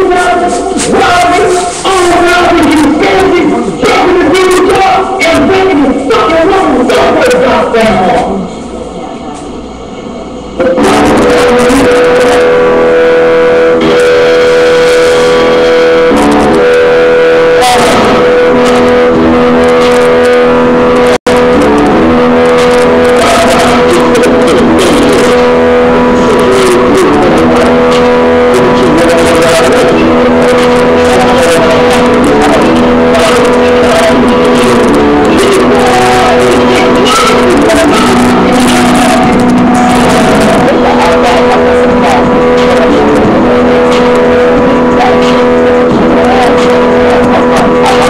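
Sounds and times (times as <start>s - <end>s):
loud music with held chords: 10.6s - 48.0s.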